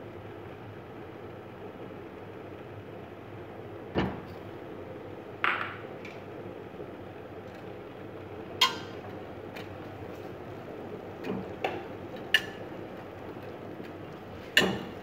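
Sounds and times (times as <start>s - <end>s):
knocks against metal saucepan: 14.6s - 14.9s.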